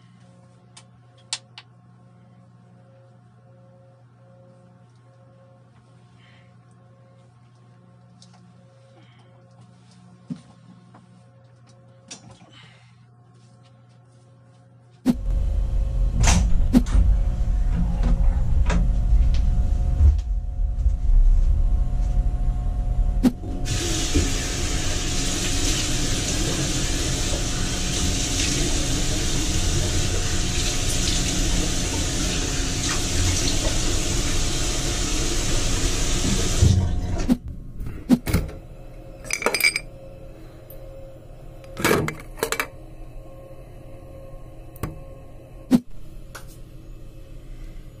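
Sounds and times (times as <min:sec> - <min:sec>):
low rumble: 0:15.1 - 0:23.9
tap water running into basin: 0:23.7 - 0:37.0.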